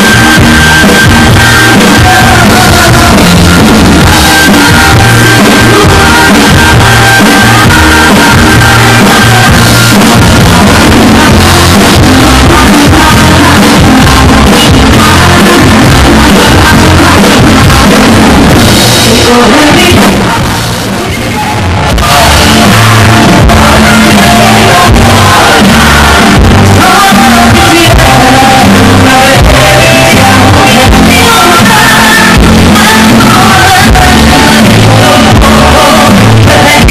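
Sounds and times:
live band playing loud: 0.0s - 36.9s.

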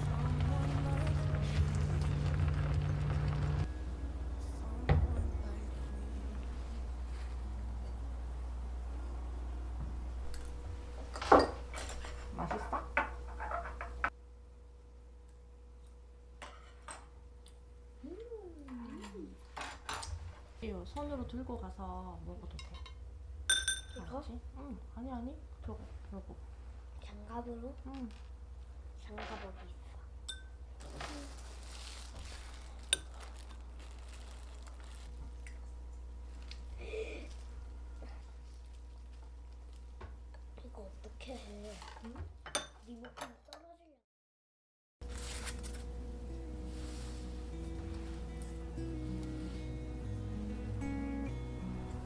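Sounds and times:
low steady hum: 0.0s - 42.9s, 45.0s - 52.0s
dishes clinking: 11.1s - 14.1s, 22.6s - 24.0s, 42.4s - 43.4s
metal chopsticks clinking on ceramic: 22.6s - 24.0s.

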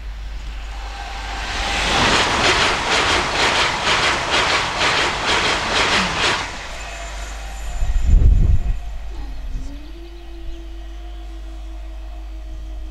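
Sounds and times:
high-speed train passing: 0.0s - 12.0s.

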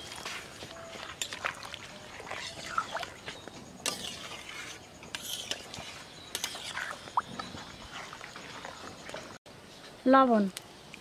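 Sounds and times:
metal spoon scraping metal pan: 3.8s - 7.2s.

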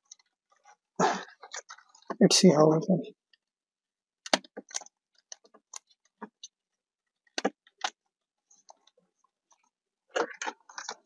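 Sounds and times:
plastic clicks and knocks: 4.2s - 6.4s, 7.3s - 8.0s.

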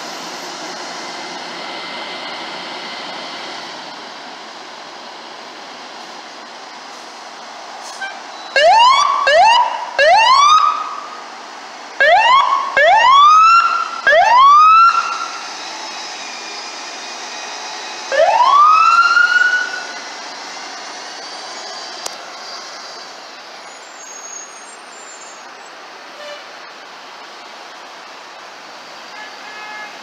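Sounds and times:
fire engine siren whoops: 8.0s - 11.2s, 12.0s - 20.2s.

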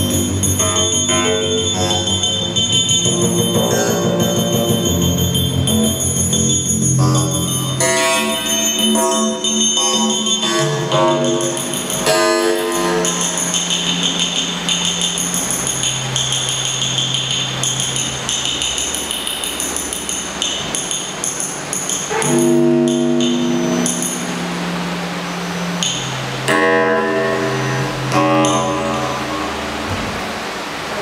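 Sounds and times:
high metallic tones: 0.0s - 31.0s
low synthesizer drone: 0.0s - 31.0s
stacked synthesizer tones: 0.0s - 31.0s.

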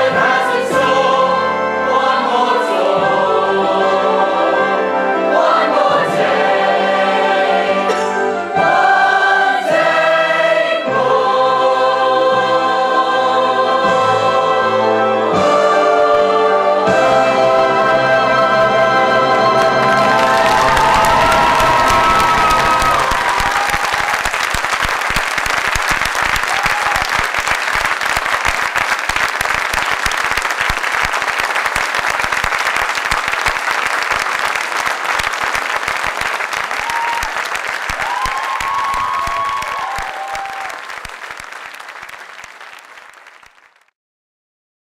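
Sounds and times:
audience applauding: 19.4s - 43.9s.

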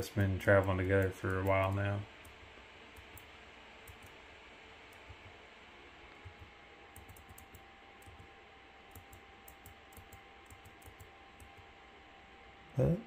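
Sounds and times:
computer mouse clicking: 0.0s - 4.2s, 4.9s - 5.4s, 6.1s - 8.3s, 8.9s - 11.7s.

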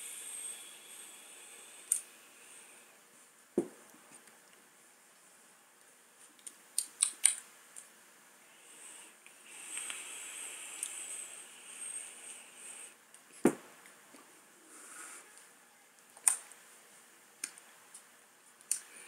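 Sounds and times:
vape draw and exhale: 8.6s - 13.0s, 14.7s - 15.3s.

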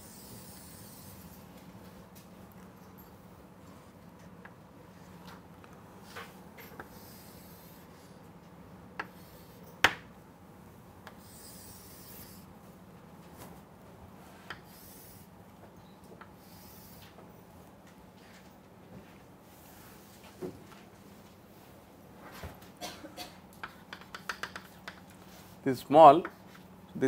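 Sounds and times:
chalk tapping on blackboard: 9.0s - 10.0s, 23.6s - 25.1s
chalk scratching on blackboard: 11.2s - 12.4s.

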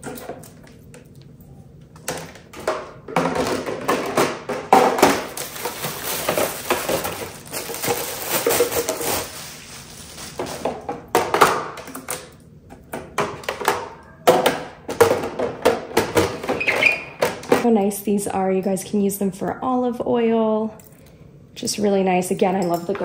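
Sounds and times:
plastic bins clattering on stone: 2.1s - 9.4s, 10.2s - 12.3s, 13.0s - 17.7s.

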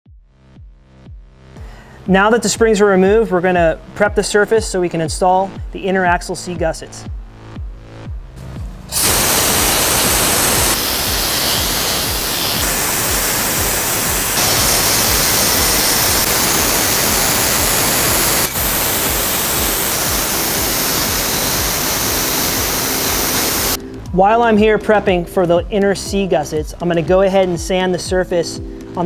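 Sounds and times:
grinder sanding steel: 9.0s - 23.8s.

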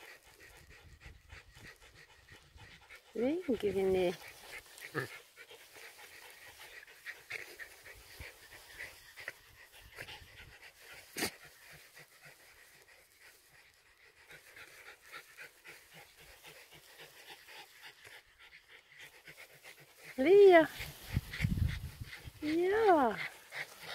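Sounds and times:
dog panting: 0.0s - 23.9s.

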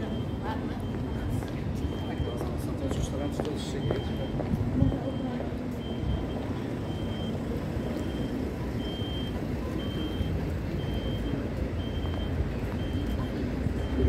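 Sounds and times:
passing vehicles rumbling: 0.0s - 14.0s.

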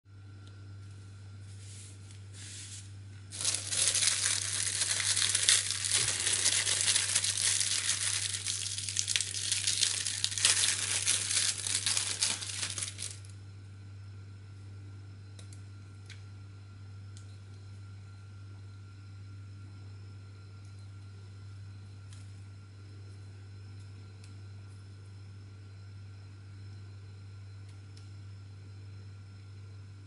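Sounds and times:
plastic bag crinkling: 3.3s - 13.3s.

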